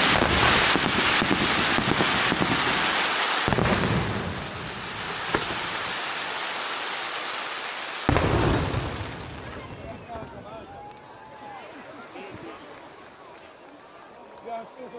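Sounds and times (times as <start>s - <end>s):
firework shells bursting: 0.0s - 9.6s
crackling firework stars: 0.0s - 14.1s
sharp pop: 5.3s - 5.6s.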